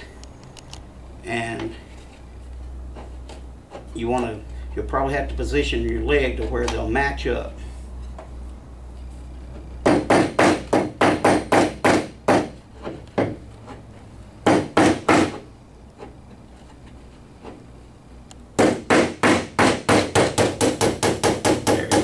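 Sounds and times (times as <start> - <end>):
hammer tapping wooden dowel: 9.8 - 13.4, 14.4 - 15.4, 18.6 - 22.0.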